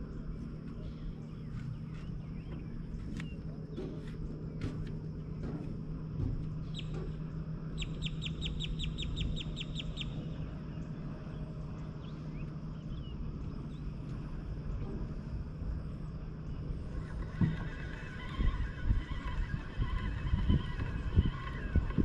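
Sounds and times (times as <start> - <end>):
low rumbling background: 0.0 - 22.0
steady low hum: 0.0 - 22.0
bird trilling: 6.6 - 7.1, 7.7 - 10.9, 16.9 - 22.0
faint bird chirps: 6.6 - 7.1, 7.8 - 14.0.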